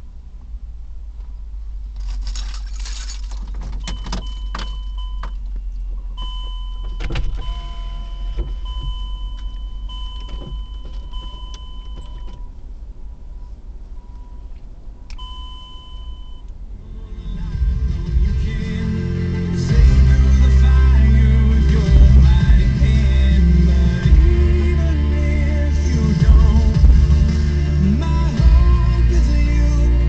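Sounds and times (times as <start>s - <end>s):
car cabin rumble: 0.0s - 30.0s
clicks and rattles: 2.0s - 5.5s
thin high beep: 6.2s - 12.3s.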